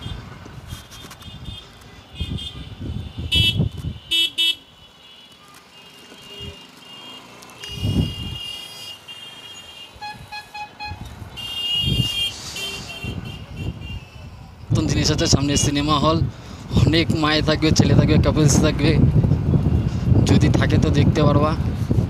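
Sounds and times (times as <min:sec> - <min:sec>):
wind rumbling on microphone: 0:00.0 - 0:04.1, 0:07.7 - 0:08.5, 0:10.0 - 0:22.0
vehicle horns beeping: 0:00.0 - 0:14.3.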